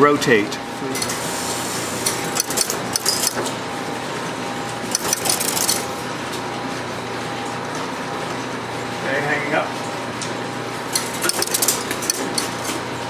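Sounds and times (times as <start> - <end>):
mechanical hum of machinery: 0.0 - 13.0
sharp metallic clicking: 2.0 - 3.4, 4.9 - 5.9, 11.0 - 12.5.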